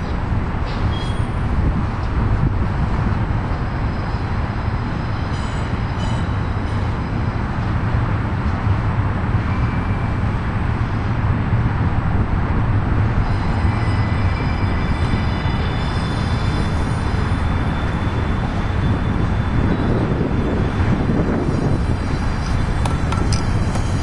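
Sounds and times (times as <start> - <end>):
train wheels rumbling on rails: 0.0 - 24.0
faint high-pitched squeals: 13.2 - 20.2.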